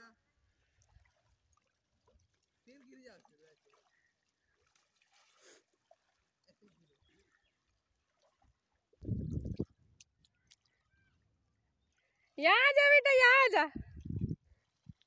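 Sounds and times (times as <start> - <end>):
low rumble on microphone: 9.0 - 9.7, 13.8 - 14.5.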